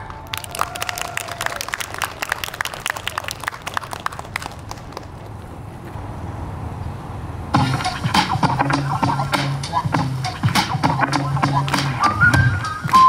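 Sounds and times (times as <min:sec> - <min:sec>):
audience applause: 0:00.2 - 0:05.4.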